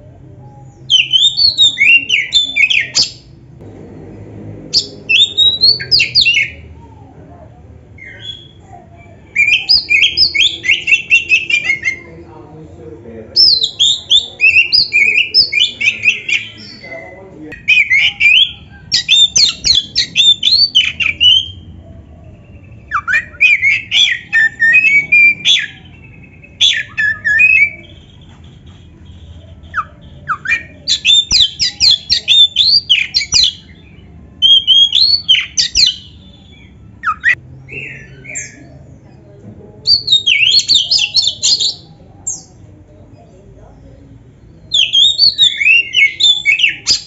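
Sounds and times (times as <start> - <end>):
bird singing whistled notes: 4.8 - 6.6, 29.6 - 38.7, 39.9 - 42.6, 44.6 - 47.0.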